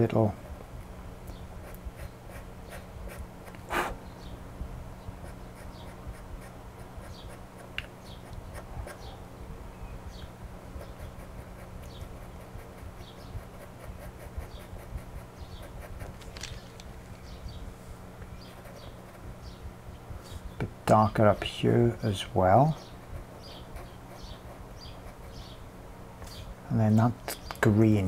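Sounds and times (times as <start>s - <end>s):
faint steady hum: 0.0s - 28.0s
pencil scratching on paper: 5.2s - 9.1s, 10.8s - 16.2s, 22.9s - 25.6s.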